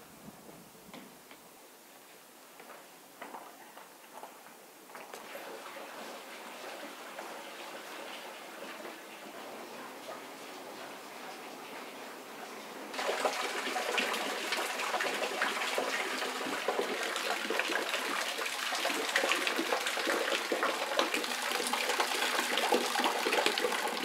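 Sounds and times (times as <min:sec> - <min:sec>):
waterfall splashing into pool: 0:12.9 - 0:24.0.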